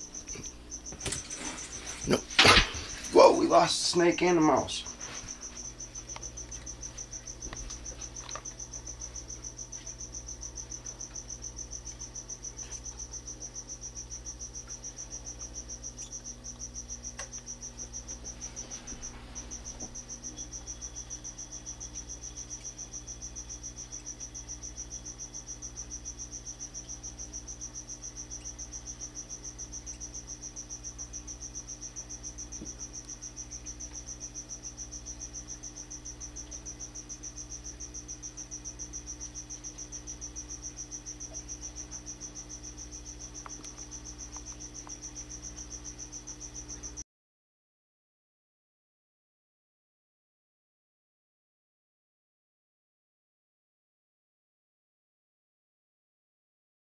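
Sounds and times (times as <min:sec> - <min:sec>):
cricket chirping: 0:00.0 - 0:47.0
low steady hum: 0:00.0 - 0:47.0.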